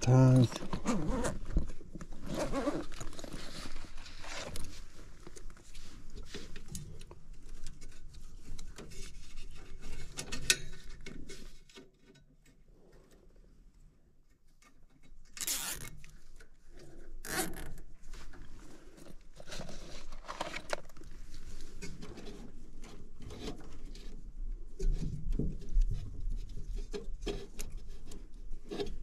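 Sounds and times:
zip ties zipping: 15.4 - 15.9.

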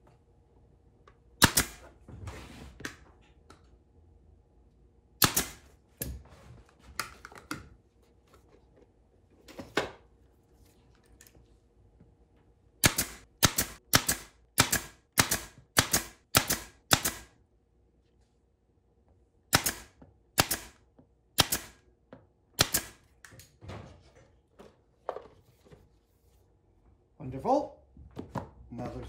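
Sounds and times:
pneumatic nailer firing: 1.4 - 2.0, 5.2 - 5.7, 12.8 - 17.3, 19.5 - 20.8, 21.4 - 21.8, 22.6 - 23.0.

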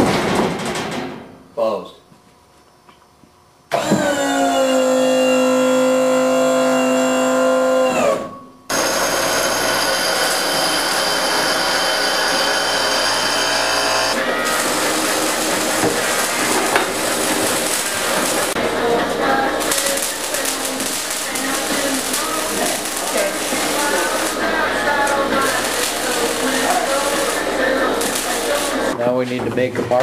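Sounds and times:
noisy machine high whine: 5.2 - 29.0.

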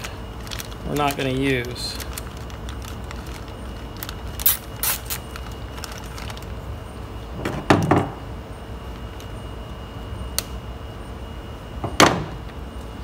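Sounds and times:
plastic bag crinkling: 0.0 - 6.7
faint steady hum: 0.0 - 13.0.

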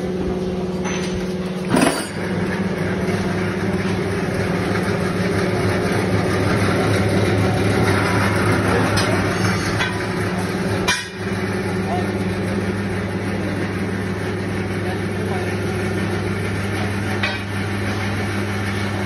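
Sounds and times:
mixer motor hum: 0.0 - 19.0.

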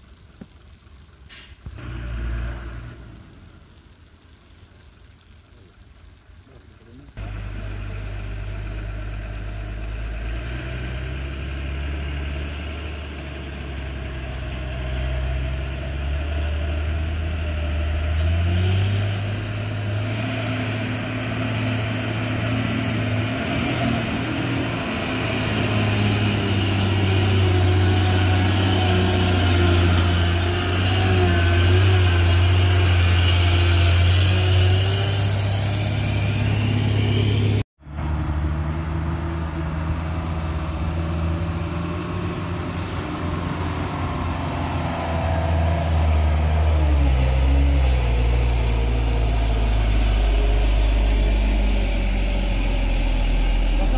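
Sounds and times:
truck engine labouring uphill: 0.0 - 4.3, 6.9 - 53.9.

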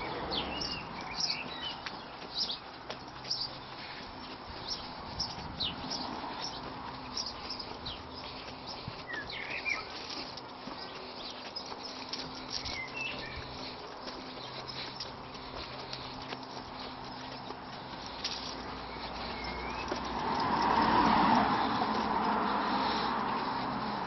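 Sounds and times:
footsteps on gritty path: 0.0 - 24.0
small birds chirping: 0.0 - 24.0.

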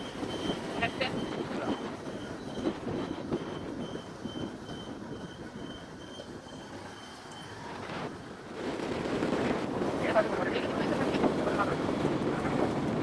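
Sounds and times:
turn indicator beeps: 0.0 - 7.7
motorcycle engine at low speed: 0.0 - 13.0
road noise: 0.0 - 13.0.

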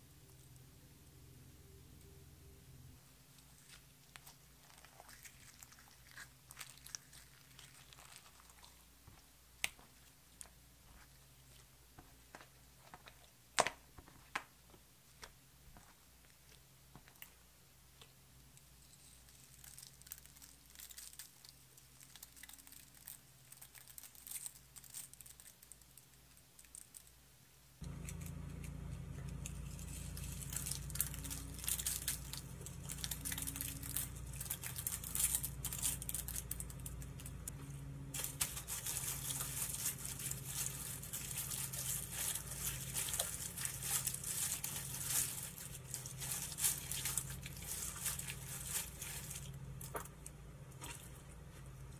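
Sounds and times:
crackling confetti in slime: 3.4 - 9.0, 18.6 - 27.2, 27.9 - 37.5, 38.2 - 50.0.

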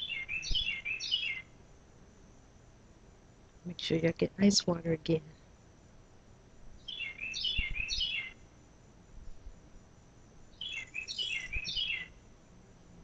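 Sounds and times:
songbird singing: 0.0 - 1.7, 6.7 - 8.6, 10.5 - 12.4.

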